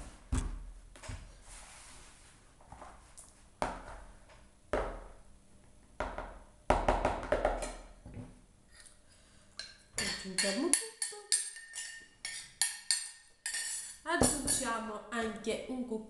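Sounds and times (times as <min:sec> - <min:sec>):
spoon clinking ceramic bowl: 0:09.6 - 0:14.7.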